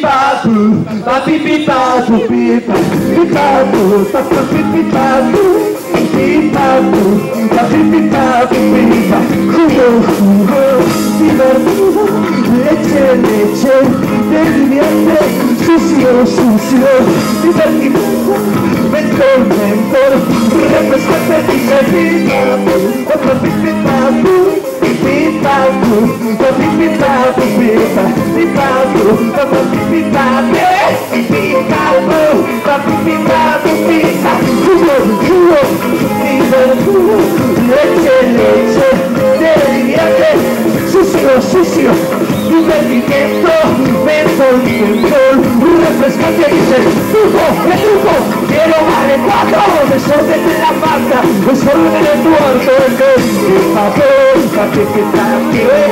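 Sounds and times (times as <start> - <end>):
drums: 0.0 - 55.9
electric bass: 0.0 - 55.9
electric guitar: 0.0 - 55.9
keyboard: 0.0 - 55.9.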